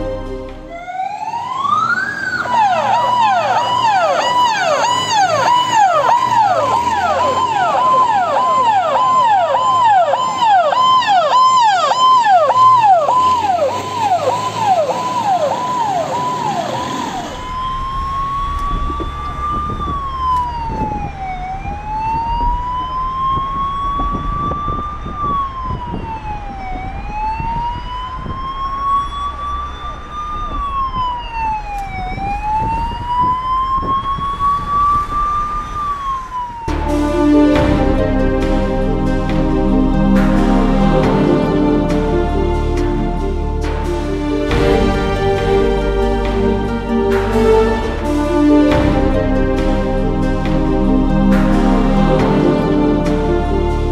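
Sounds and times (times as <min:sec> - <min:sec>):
ambulance siren wailing and yelping: 0:00.0 - 0:48.8
traffic noise: 0:00.0 - 0:53.9.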